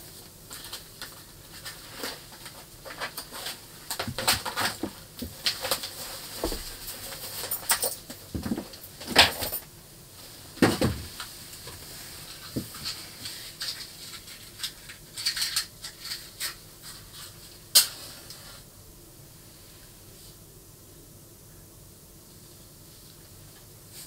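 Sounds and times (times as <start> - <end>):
small objects clinking and scraping: 12.3 - 17.4.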